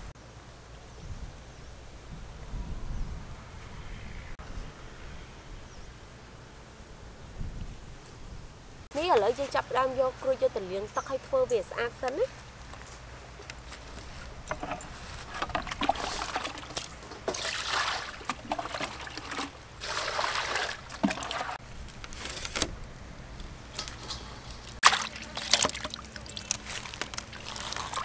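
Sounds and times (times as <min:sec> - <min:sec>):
knocks and splashes in water: 0:15.4 - 0:21.6, 0:24.8 - 0:28.0
water pouring into steel basin: 0:17.3 - 0:21.6, 0:24.8 - 0:28.0.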